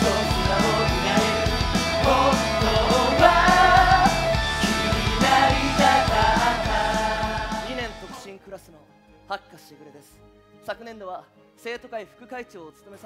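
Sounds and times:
men singing together: 0:00.0 - 0:08.2
rock band playing: 0:00.0 - 0:08.2.

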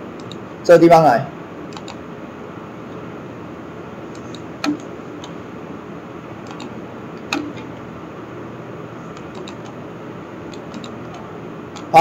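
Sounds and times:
steady background hiss: 0:00.0 - 0:12.0
computer mouse clicks: 0:00.2 - 0:00.4, 0:01.7 - 0:02.0, 0:04.1 - 0:05.4, 0:06.4 - 0:07.7, 0:09.1 - 0:09.8, 0:10.5 - 0:11.9.

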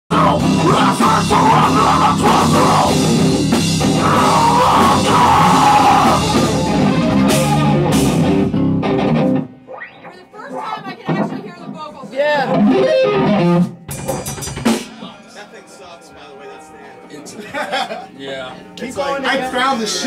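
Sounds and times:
rock band playing live: 0:00.1 - 0:15.5.

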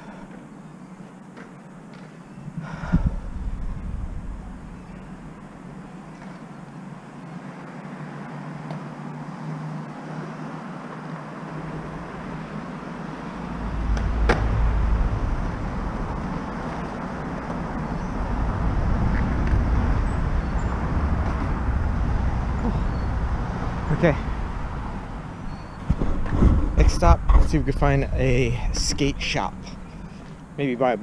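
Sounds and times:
traffic hiss: 0:02.6 - 0:31.0
deep rumble: 0:02.7 - 0:06.1, 0:11.7 - 0:30.5.

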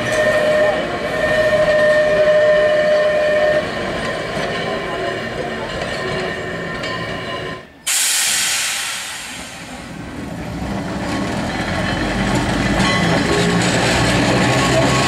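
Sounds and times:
wheels squealing on track: 0:00.0 - 0:07.7, 0:11.0 - 0:15.0
tram rumbling on rails: 0:00.0 - 0:15.0
loud hiss: 0:07.9 - 0:10.0.

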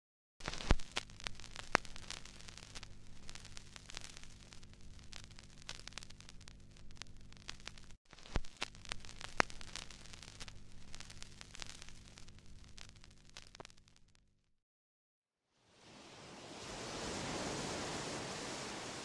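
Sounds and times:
vinyl clicks and pops: 0:00.4 - 0:14.2
vinyl hiss and crackle: 0:00.4 - 0:14.3, 0:15.6 - 0:19.0.

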